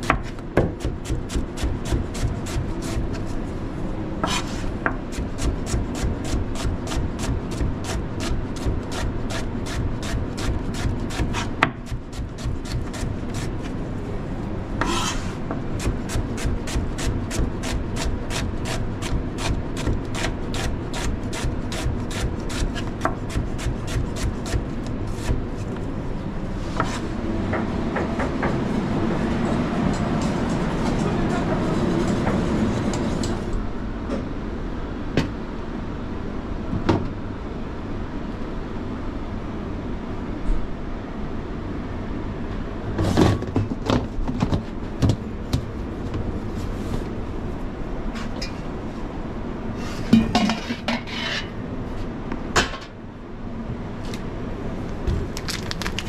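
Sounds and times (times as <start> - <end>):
knife chopping onion on board: 0.0 - 3.1, 4.2 - 13.5, 15.8 - 25.5
rustling and scraping in steel pot: 4.2 - 4.8, 14.7 - 15.5, 49.8 - 52.1.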